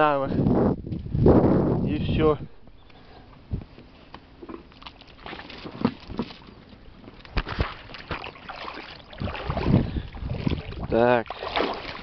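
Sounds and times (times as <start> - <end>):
boots splashing in muddy water: 4.7 - 6.7, 7.3 - 12.0.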